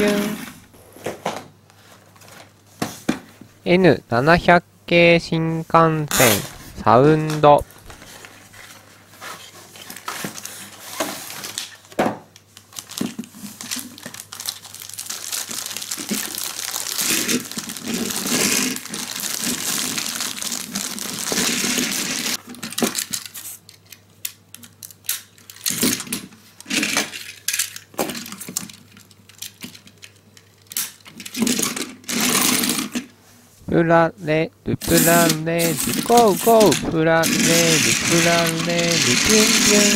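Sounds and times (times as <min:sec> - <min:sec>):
plastic packaging crinkling: 0:12.5 - 0:22.4, 0:35.1 - 0:39.9.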